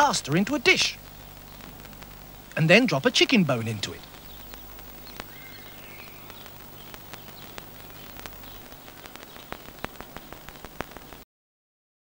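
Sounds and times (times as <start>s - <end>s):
low hum: 0.0s - 11.1s
steady hiss: 0.0s - 11.2s
clicks and pops: 4.0s - 11.2s.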